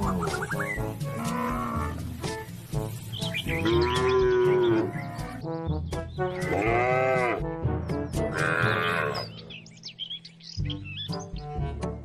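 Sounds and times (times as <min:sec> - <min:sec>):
background music: 0:00.0 - 0:12.0
cattle mooing: 0:01.1 - 0:02.0, 0:03.6 - 0:05.3, 0:06.4 - 0:07.4, 0:08.3 - 0:09.3.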